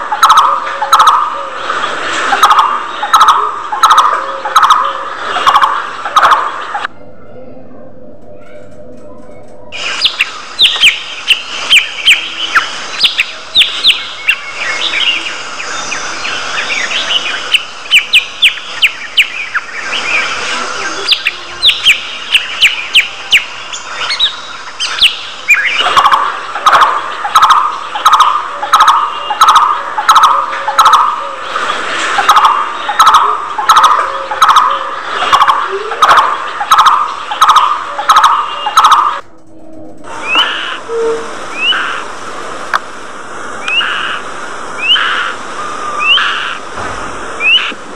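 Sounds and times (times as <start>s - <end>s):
budgerigars chirping: 21.0s - 31.2s, 32.3s - 39.2s
lower bird call: 40.0s - 42.1s.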